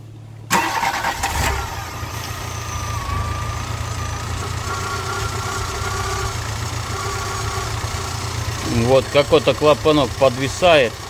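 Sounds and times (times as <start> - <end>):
car engine idling: 0.0 - 11.0
thin steady whine: 1.6 - 9.0.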